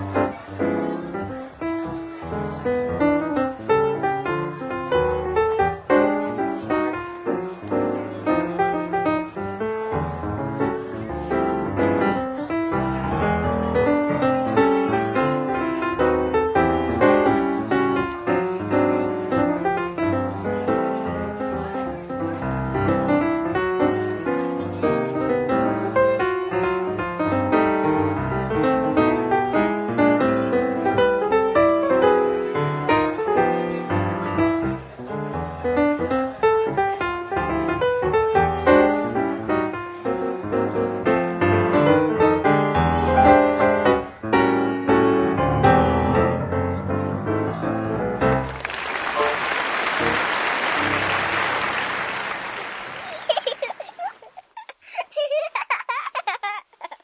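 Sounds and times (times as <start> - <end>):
piano music: 0.0 - 53.3
audience applause: 48.3 - 54.3.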